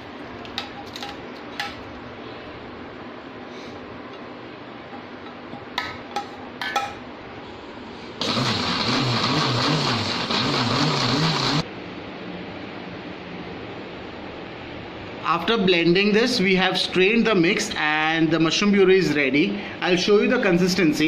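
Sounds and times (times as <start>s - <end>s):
mixer grinder motor blending: 8.2s - 11.6s.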